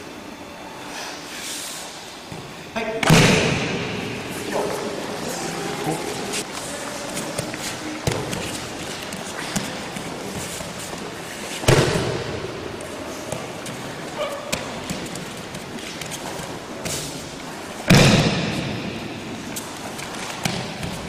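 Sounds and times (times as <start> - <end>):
heavy thud on mats: 11.6 - 12.4.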